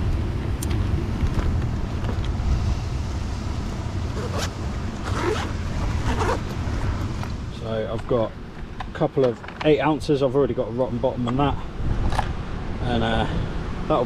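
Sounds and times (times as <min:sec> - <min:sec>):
wind rumble on microphone: 0:00.0 - 0:09.0, 0:09.7 - 0:14.0
zip being pulled shut: 0:04.1 - 0:06.5.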